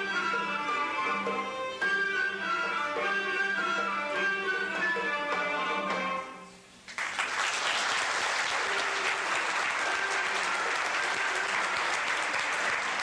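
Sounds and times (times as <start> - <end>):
audience applauding: 6.9 - 13.0.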